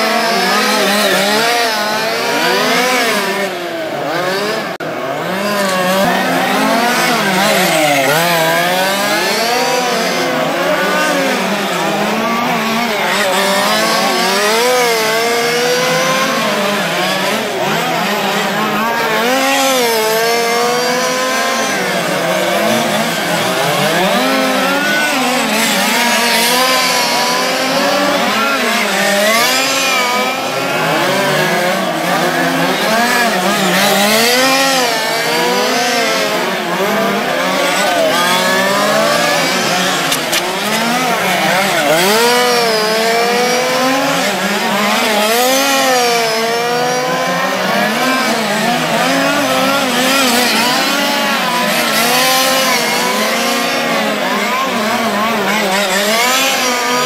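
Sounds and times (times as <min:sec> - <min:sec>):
small racing car engines whining: 0:00.0 - 0:57.0.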